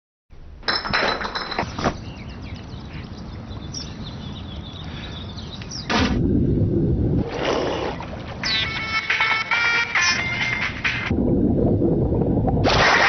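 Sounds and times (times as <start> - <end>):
outdoor background noise: 0.3 - 13.0
birds chirping: 1.4 - 6.0, 7.8 - 10.1.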